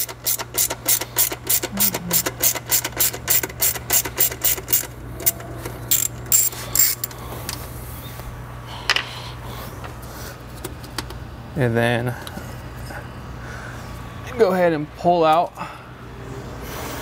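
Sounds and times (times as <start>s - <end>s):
socket ratchet clicking: 0.0s - 7.1s.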